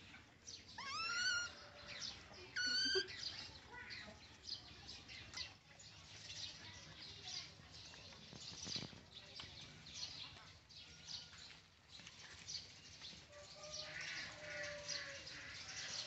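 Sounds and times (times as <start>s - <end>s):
baby monkey crying: 0.8s - 1.6s, 2.5s - 3.2s.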